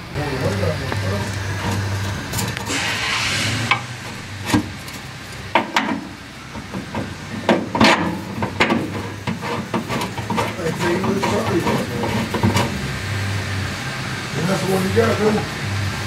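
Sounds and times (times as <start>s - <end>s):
brief hiss: 2.7s - 3.7s.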